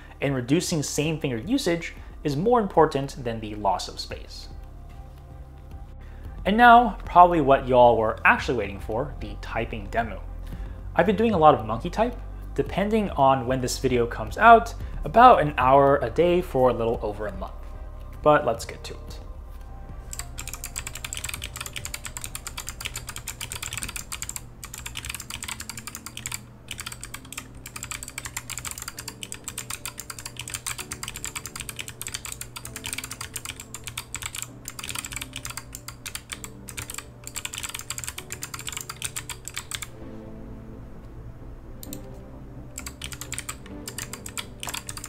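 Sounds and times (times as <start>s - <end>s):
mechanical keypad typing: 20.1s - 39.9s, 42.8s - 45.0s.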